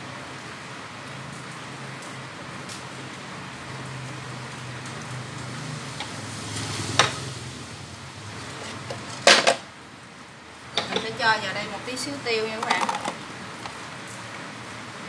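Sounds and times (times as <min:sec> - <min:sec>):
plate clacking down: 0:08.4 - 0:09.7, 0:10.7 - 0:11.2, 0:12.6 - 0:13.2
metal wok clanking: 0:10.7 - 0:11.2.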